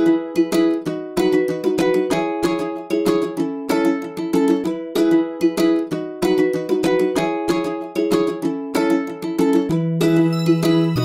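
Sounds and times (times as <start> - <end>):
upbeat plucked string music: 0.0 - 11.0.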